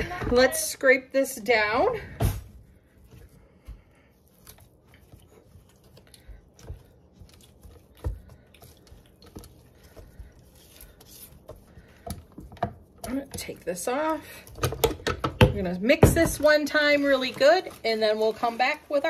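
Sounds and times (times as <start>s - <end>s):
spatula scraping dough in bowl: 15.8s - 19.0s.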